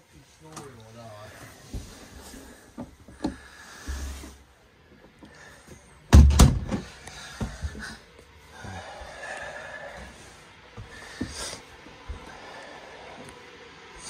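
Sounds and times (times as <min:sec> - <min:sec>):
drawn-out breathy noise: 0:01.0 - 0:06.1, 0:06.7 - 0:14.0
loud thump: 0:06.1 - 0:06.8.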